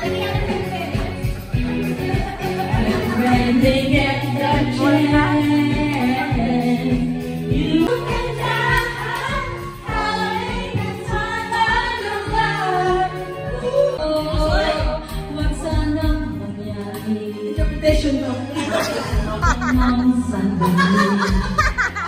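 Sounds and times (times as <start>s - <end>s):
backing track with bass line: 0.0s - 22.0s
other voices singing along: 2.5s - 15.1s
woman singing into a microphone: 2.7s - 21.8s.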